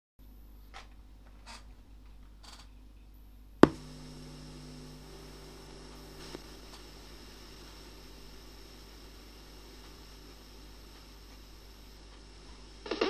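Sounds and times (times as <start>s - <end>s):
low electrical hum: 0.2s - 13.0s
faint hiss: 3.2s - 13.0s.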